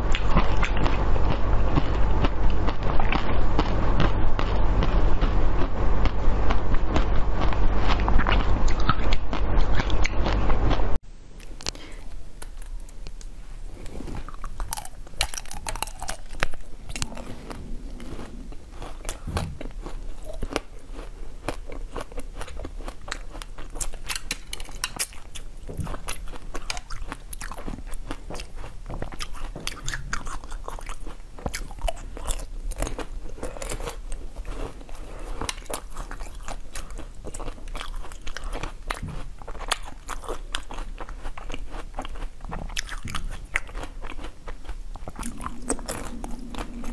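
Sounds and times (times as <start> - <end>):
crunching bites and chewing: 11.4 - 46.9.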